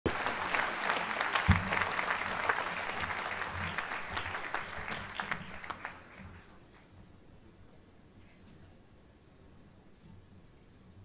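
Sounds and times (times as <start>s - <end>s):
audience applauding: 0.0s - 6.5s.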